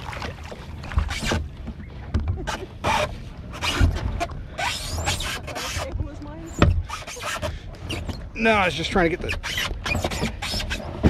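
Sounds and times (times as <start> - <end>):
shallow water splashing: 0.0 - 11.0
dull thumps of hull and gear: 0.5 - 11.0
kayak hull scraping sand: 2.5 - 5.9, 6.5 - 11.0.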